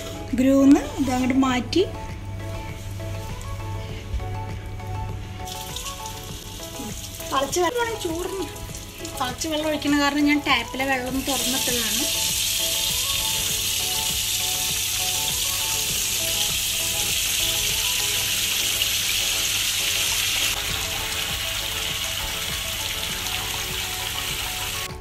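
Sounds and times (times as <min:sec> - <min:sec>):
water pouring into a steel sink: 0:05.5 - 0:10.0.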